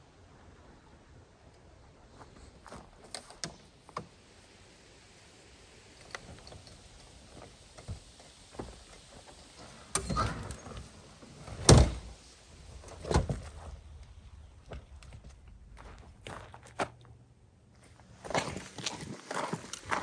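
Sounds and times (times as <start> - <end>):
camper roof thumps: 11.4 - 12.2.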